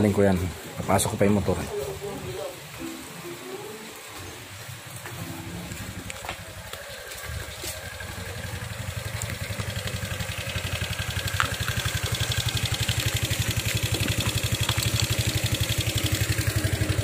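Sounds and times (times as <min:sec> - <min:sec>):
scooter engine idling: 0:05.2 - 0:17.0.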